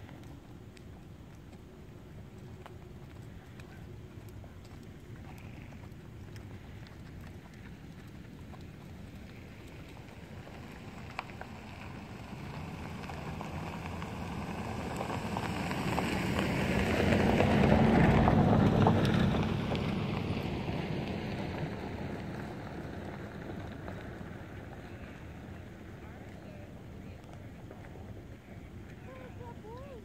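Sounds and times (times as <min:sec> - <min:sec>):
passing vehicle rumble: 0:06.4 - 0:30.0.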